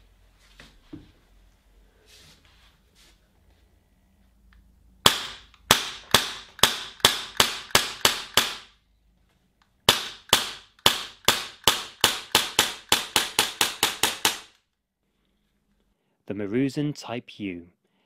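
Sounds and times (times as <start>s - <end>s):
airsoft pistol shots: 5.0s - 8.7s, 9.9s - 14.5s.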